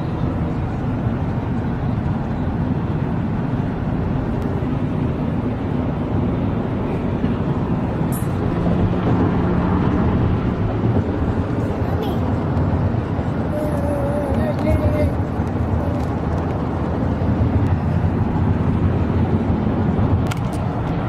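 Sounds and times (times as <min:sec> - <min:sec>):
car road and engine noise: 0:00.0 - 0:21.0.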